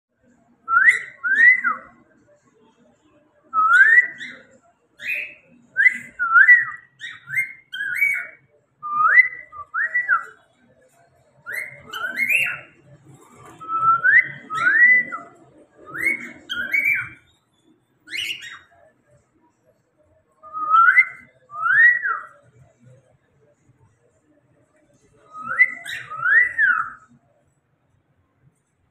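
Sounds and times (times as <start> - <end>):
cockatiel whistling: 0.7 - 2.0, 3.6 - 10.4, 11.4 - 12.8, 13.6 - 17.3, 18.1 - 18.8, 20.4 - 22.4, 25.3 - 27.1.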